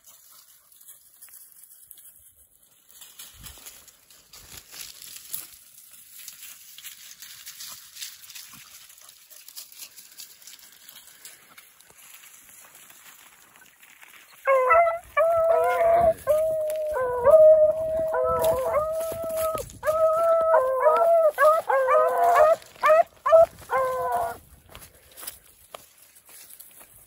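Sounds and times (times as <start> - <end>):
dogs baying: 14.4 - 24.4.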